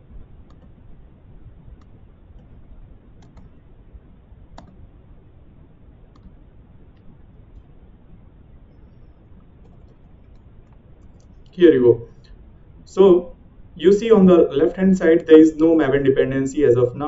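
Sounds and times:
faint room hiss: 0.0 - 17.0
computer mouse clicking: 0.5 - 0.8, 3.2 - 3.6, 4.6 - 4.8, 6.1 - 7.7, 9.6 - 11.5.

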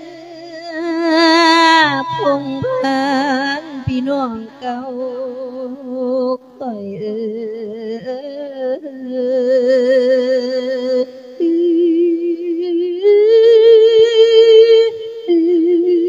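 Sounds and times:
person chanting with vibrato: 0.0 - 16.0.

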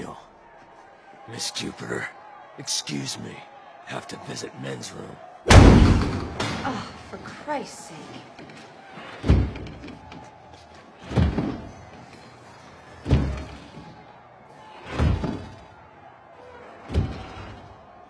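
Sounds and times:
heavy echoing thuds: 5.5 - 6.7.

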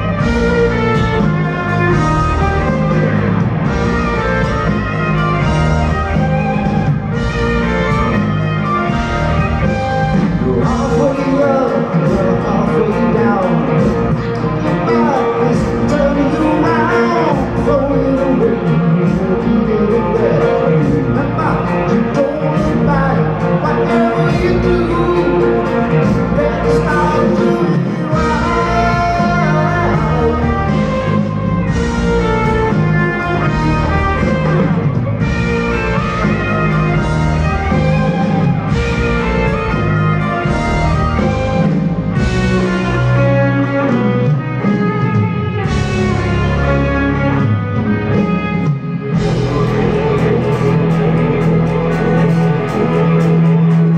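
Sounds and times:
electric guitar: 0.0 - 53.9
live rock band: 0.0 - 53.9
lead vocal singing: 10.3 - 31.2.

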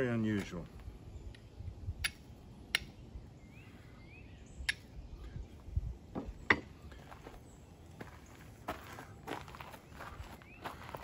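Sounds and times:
steel striker hitting flint: 1.4 - 3.0
faint bird chirp: 2.6 - 11.0.

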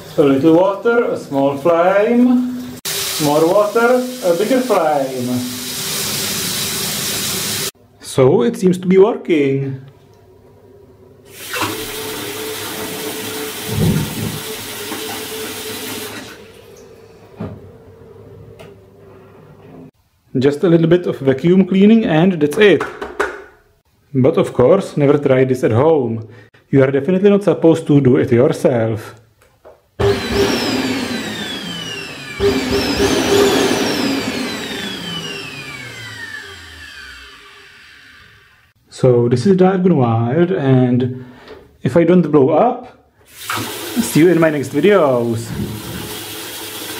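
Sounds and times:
water tap running: 0.0 - 7.8, 11.3 - 16.9, 30.0 - 38.4, 43.3 - 46.9
low thump: 13.7 - 14.4
vacuum cleaner motor whining: 30.0 - 38.7.

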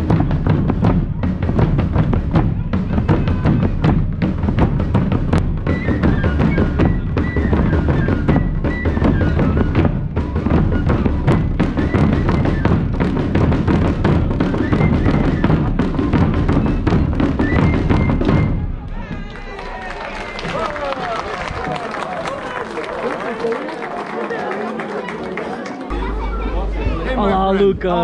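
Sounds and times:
drums played in fast rhythm: 0.0 - 18.6
rapid sharp drum strokes: 0.0 - 18.7
deep bass drum beats: 0.0 - 19.3.

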